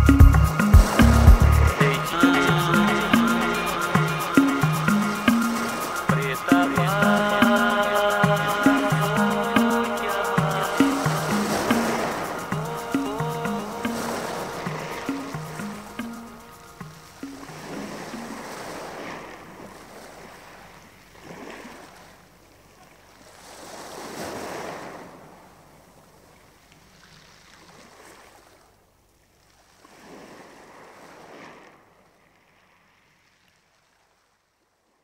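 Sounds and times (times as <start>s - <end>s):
sea waves surging: 0.0s - 28.8s, 29.6s - 34.3s.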